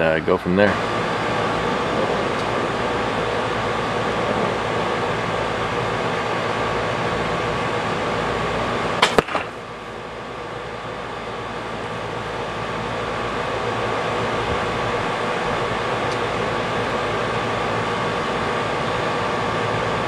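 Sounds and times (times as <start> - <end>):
steady background hum: 0.0 - 20.0
arrow hitting target: 9.0 - 9.6.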